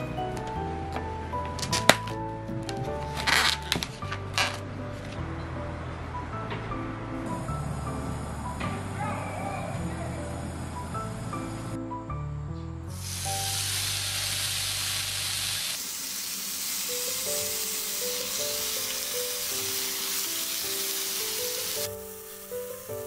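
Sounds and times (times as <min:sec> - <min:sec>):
light background music: 0:00.0 - 0:14.9, 0:16.0 - 0:23.0
meat sizzling on grill plate: 0:13.0 - 0:23.0.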